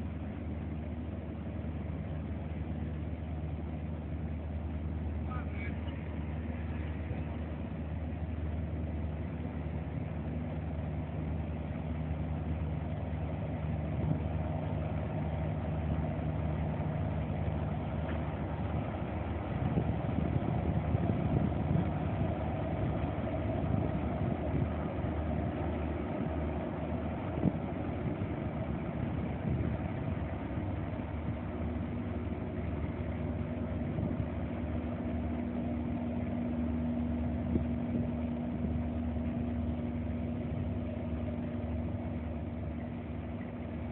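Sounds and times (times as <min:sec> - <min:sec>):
ferry engines droning: 0:00.0 - 0:43.9
higher engine note: 0:00.0 - 0:43.9.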